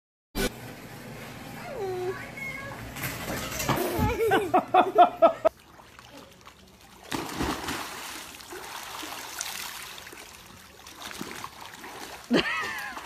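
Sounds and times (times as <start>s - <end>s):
water churning: 5.4s - 13.0s
water splash: 5.6s - 13.0s.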